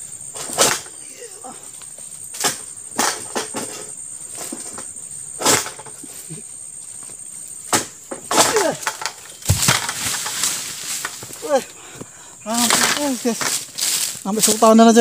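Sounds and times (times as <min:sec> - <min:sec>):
sickle hacking at a stalk: 0:00.4 - 0:00.9, 0:07.7 - 0:11.6, 0:12.5 - 0:14.1
heavy thump of fruit bunch dropping: 0:07.7 - 0:11.6
rustle of fronds: 0:08.3 - 0:15.0.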